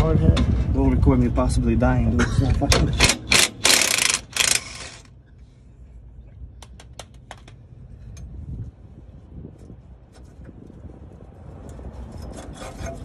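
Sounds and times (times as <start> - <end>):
impact wrench hammering: 2.8 - 5.0.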